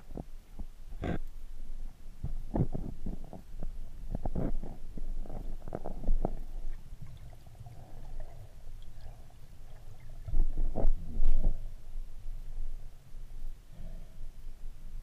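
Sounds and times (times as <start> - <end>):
muffled underwater rumbling and thumping: 2.2 - 7.2, 9.8 - 11.8.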